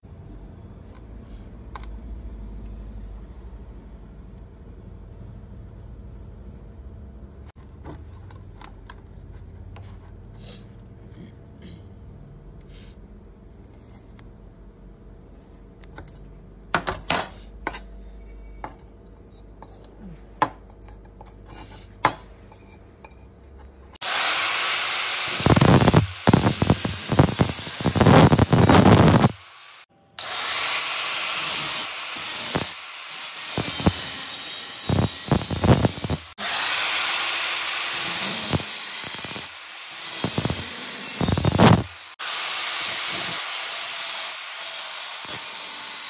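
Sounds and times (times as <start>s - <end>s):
angle grinder cutting steel: 24.0s - 46.0s.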